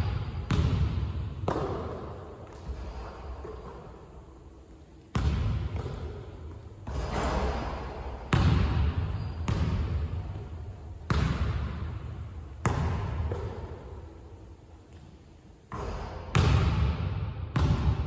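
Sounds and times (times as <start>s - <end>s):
basketball bouncing on hardwood: 11.1s - 11.8s.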